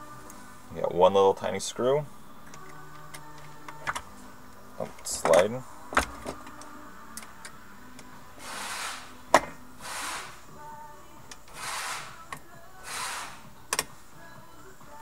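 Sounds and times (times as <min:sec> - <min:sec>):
soft hissing: 0:08.4 - 0:09.2, 0:09.8 - 0:10.7, 0:11.5 - 0:12.2, 0:12.8 - 0:13.5.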